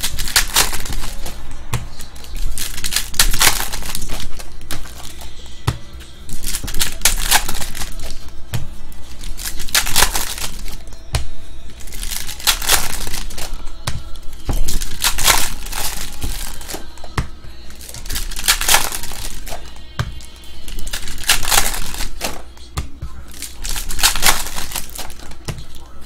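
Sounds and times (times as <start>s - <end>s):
foil packs crinkling and tearing: 0.0s - 1.4s, 2.1s - 5.3s, 6.3s - 8.3s, 9.1s - 10.9s, 11.8s - 13.6s, 14.2s - 17.0s, 17.7s - 19.8s, 20.6s - 22.5s, 23.3s - 25.8s
cards clicking and rustling: 0.0s - 5.4s, 6.3s - 8.4s, 9.0s - 25.9s.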